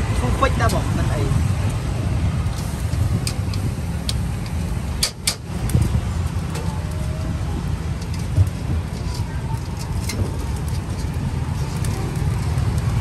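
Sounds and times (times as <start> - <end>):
low rumble of street traffic: 0.0 - 13.0
tongs clicking on grill grate: 2.5 - 5.5.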